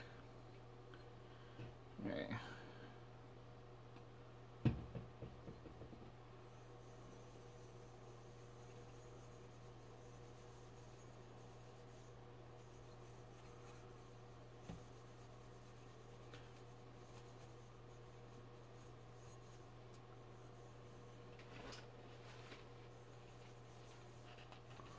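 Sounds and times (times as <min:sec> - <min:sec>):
steady low hum: 0:00.0 - 0:24.9
soft knock: 0:04.6 - 0:06.2
sponge scrubbing metal goblet: 0:06.5 - 0:21.2, 0:22.9 - 0:24.9.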